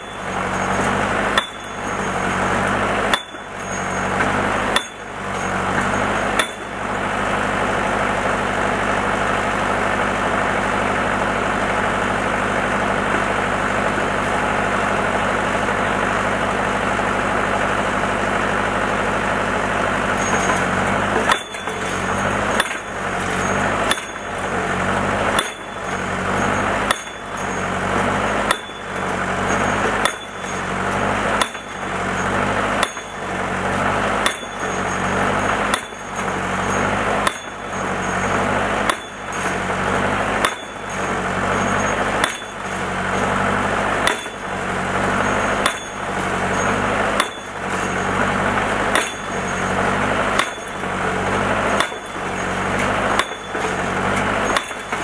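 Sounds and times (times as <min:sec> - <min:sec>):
anvil pounding pipe into ground: 0:00.0 - 0:08.6, 0:20.0 - 0:55.0
machine engine running: 0:00.0 - 0:55.0.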